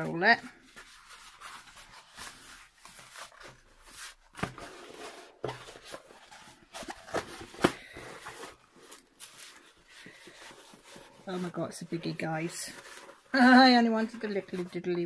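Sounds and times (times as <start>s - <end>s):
plastic cover crinkling: 0.0s - 15.0s.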